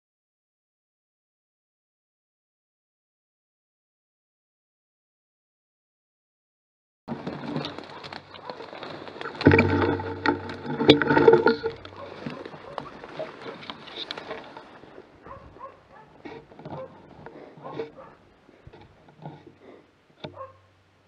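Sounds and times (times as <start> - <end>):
low droning sound: 9.4 - 11.9.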